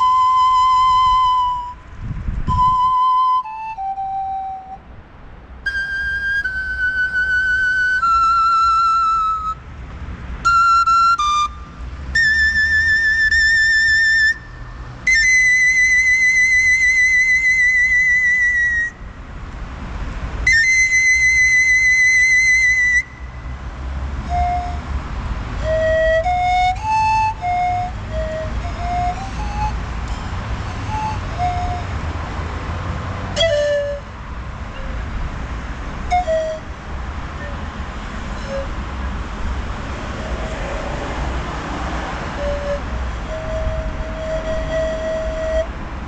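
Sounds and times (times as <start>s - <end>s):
pan flute notes with vibrato: 0.0s - 4.9s, 5.6s - 9.7s, 10.4s - 19.0s, 20.5s - 23.6s, 24.2s - 25.0s, 25.6s - 32.1s, 33.3s - 35.1s, 36.0s - 39.0s, 42.2s - 46.0s
low traffic rumble: 0.0s - 46.0s.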